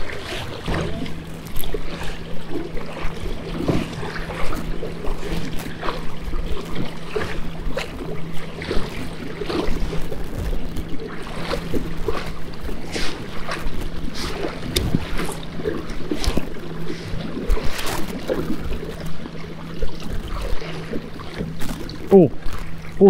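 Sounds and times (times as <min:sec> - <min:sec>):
waves splashing against kayak hull: 0:00.0 - 0:23.0
wind on microphone: 0:14.1 - 0:15.4.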